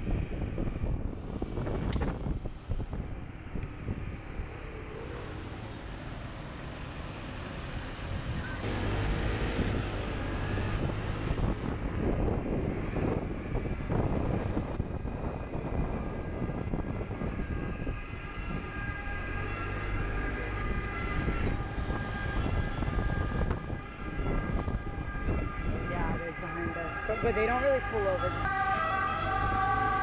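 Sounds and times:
wind rushing over microphone: 0.0s - 30.0s
scooter engine: 8.4s - 11.3s.

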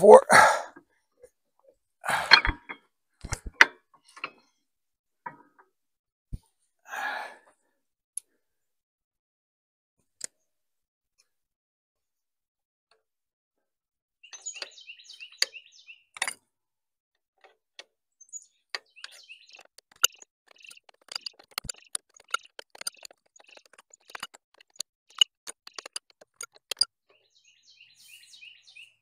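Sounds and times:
small birds chirping: 14.2s - 16.2s, 18.1s - 29.0s
sharp clicks and knocks: 18.7s - 26.9s.

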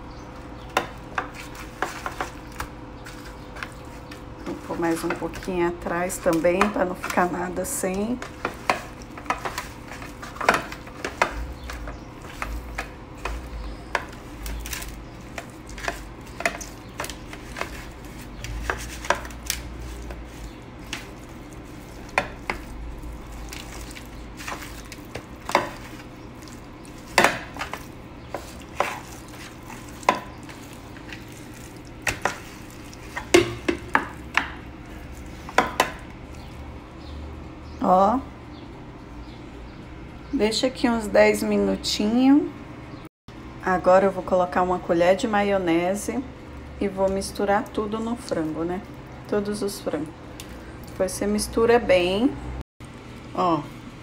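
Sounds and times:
chicken knocking on metal tray: 33.2s - 34.6s.

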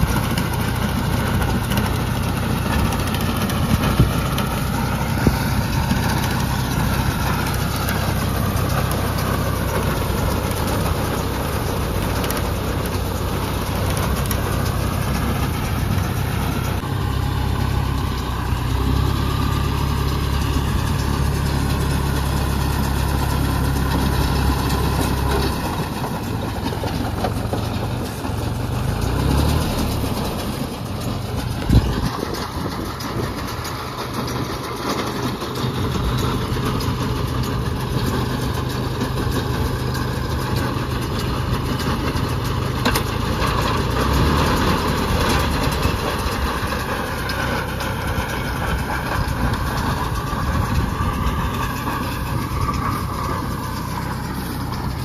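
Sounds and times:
baler machinery whirring: 0.0s - 55.0s
tractor diesel engine under load: 0.0s - 55.0s.

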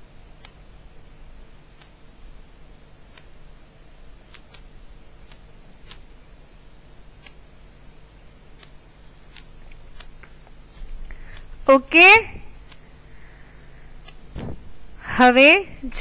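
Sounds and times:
low steady hum: 0.0s - 16.0s
faint sharp clicks: 3.1s - 3.3s, 4.3s - 6.0s.

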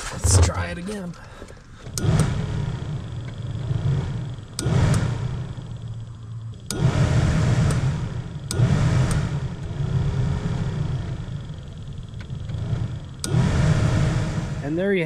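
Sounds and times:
switch clicks: 4.6s - 5.1s
blower fan air rush: 6.7s - 11.5s, 12.4s - 15.0s.

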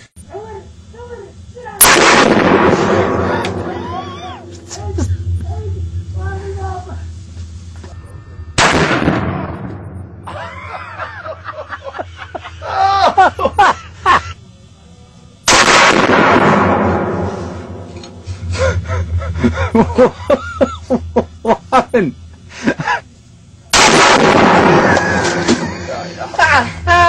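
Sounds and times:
rifle shots echoing: 1.8s - 3.8s, 8.6s - 10.0s, 15.5s - 17.9s, 23.7s - 25.6s
voices calling out: 2.8s - 7.2s.

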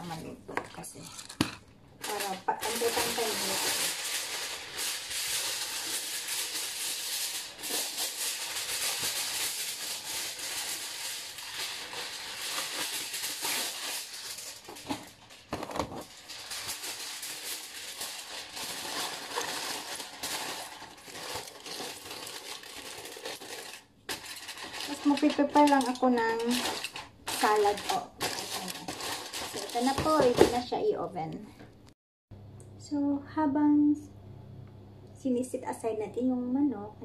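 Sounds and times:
aluminium foil crinkling: 0.0s - 30.8s
foil tearing: 2.0s - 30.6s.

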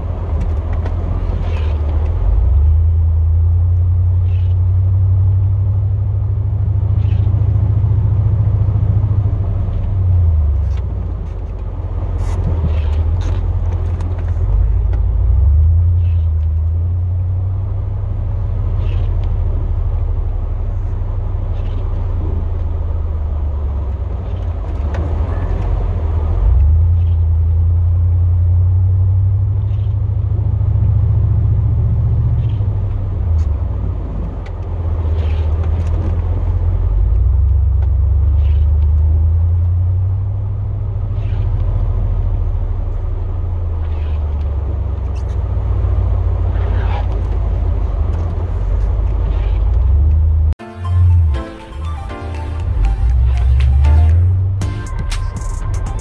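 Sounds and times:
truck engine low rumble: 0.0s - 56.0s.

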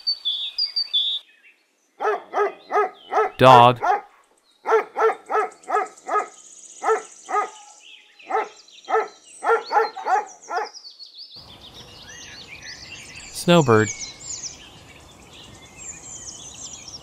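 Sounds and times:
birds chirping: 0.0s - 17.0s
outdoor noise: 0.0s - 17.0s
dog barking: 2.0s - 7.6s, 8.3s - 10.8s.

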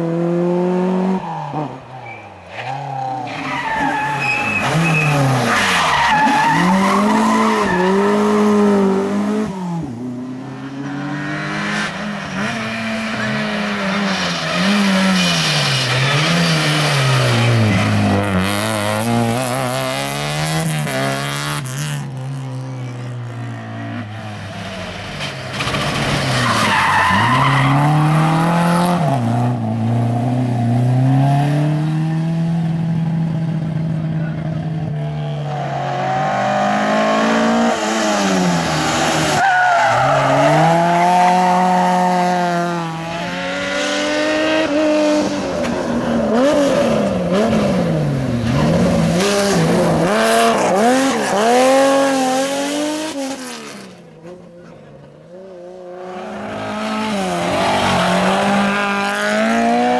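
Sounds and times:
rally car engines revving: 0.0s - 59.9s
tyres squealing: 2.0s - 8.1s.

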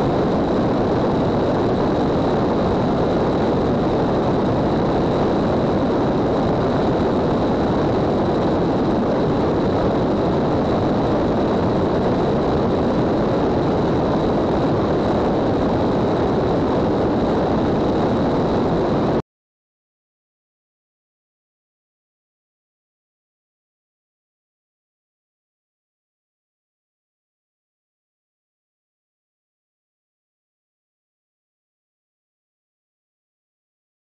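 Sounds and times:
airplane engine noise: 0.0s - 19.2s
faint high whine: 0.0s - 19.2s
wind rushing: 0.0s - 19.2s.

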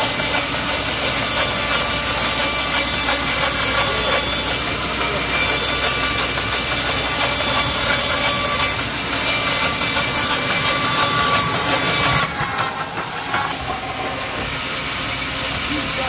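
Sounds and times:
saw blade cutting through log: 0.0s - 16.0s
sawmill machine running: 0.0s - 16.0s.

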